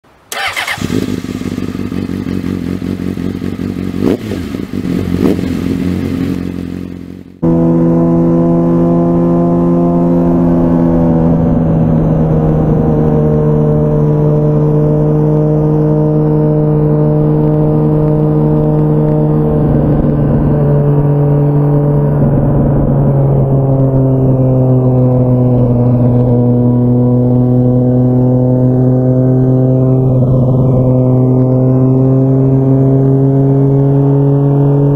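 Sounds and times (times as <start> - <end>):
motorcycle engine cruising: 0.3 - 34.9
wind rush: 9.6 - 15.2, 17.9 - 26.9.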